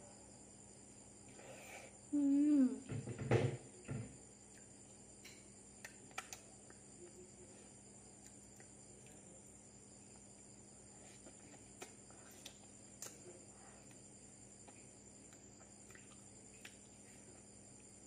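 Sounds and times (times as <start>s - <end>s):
faint steady hum: 0.0s - 18.0s
lip smacks while eating: 4.4s - 4.8s, 5.8s - 6.9s, 8.1s - 9.3s, 11.1s - 17.5s.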